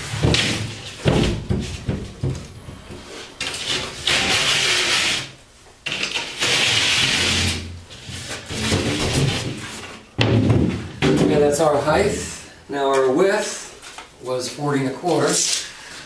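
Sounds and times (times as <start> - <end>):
knocks and handling of board: 0.0 - 4.2, 7.2 - 11.8
knife scoring drywall paper: 3.0 - 9.8.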